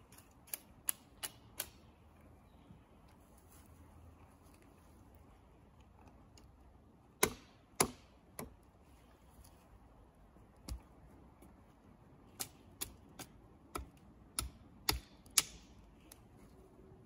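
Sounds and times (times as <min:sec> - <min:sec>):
axe chopping wood: 0:07.2 - 0:08.6, 0:12.4 - 0:15.7.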